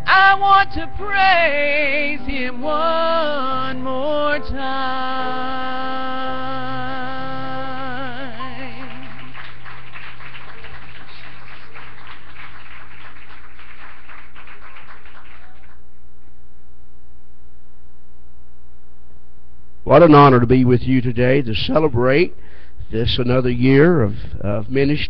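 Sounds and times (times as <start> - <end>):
person singing with vibrato: 0.0 - 9.6
sustained accompaniment chord: 0.0 - 11.5
mains hum: 0.0 - 25.0
audience applause: 8.6 - 15.8.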